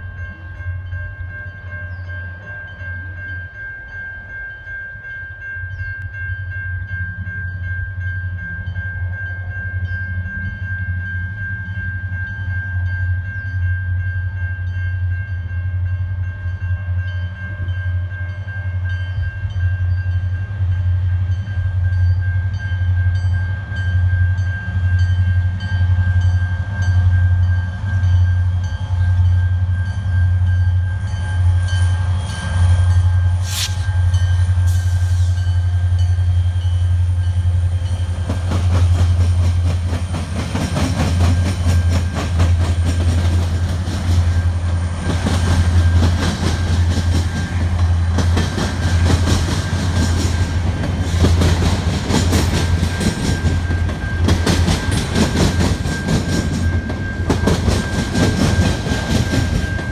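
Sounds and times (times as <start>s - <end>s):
train wheels clacking over rails: 31.4s - 59.9s.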